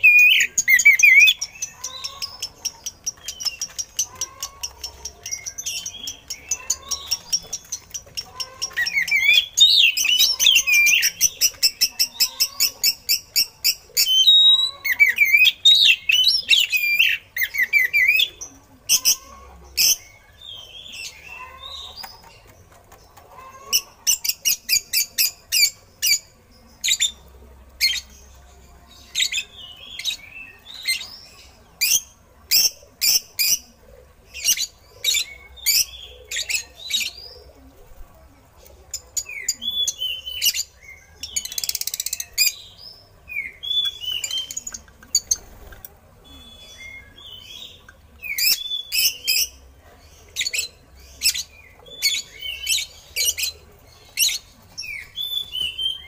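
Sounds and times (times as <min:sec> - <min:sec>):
bird singing: 0:00.0 - 0:22.6, 0:39.2 - 0:56.0.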